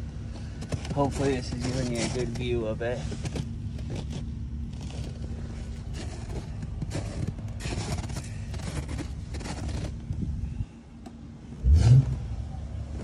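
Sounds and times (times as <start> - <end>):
constant hum: 0.0 - 13.0
handling rustle: 0.3 - 10.3
footsteps crunching on snowy gravel: 0.4 - 10.0.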